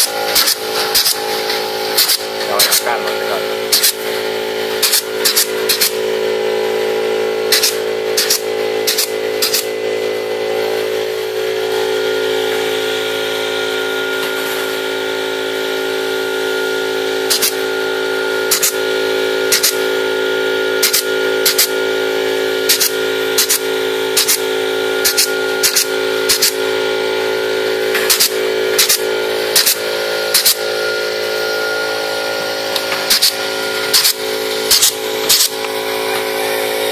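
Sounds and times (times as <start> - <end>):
pneumatic clip gun snapping: 0.0 - 2.8, 3.7 - 4.0, 4.8 - 6.0, 7.5 - 9.7, 17.3 - 17.6, 18.5 - 18.8, 19.5 - 19.8, 20.8 - 21.7, 22.7 - 26.6, 27.9 - 30.6, 32.7 - 35.7
steady hum: 0.0 - 36.9.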